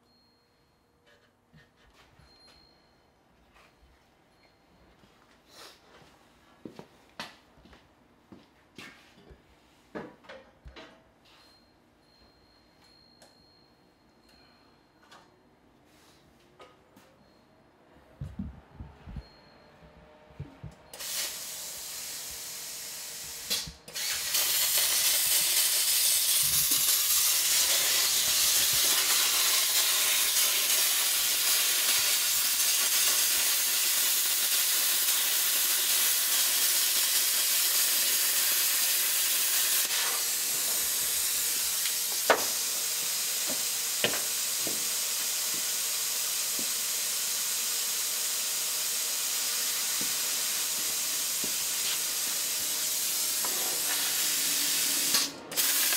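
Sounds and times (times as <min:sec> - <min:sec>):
welding arc hissing: 0:21.0 - 0:55.9.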